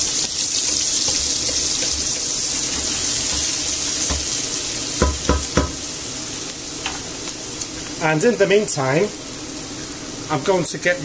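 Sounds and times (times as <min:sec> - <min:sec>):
onion sizzling in oil: 0:00.0 - 0:11.0
spoon knocking against metal pot: 0:05.0 - 0:05.8.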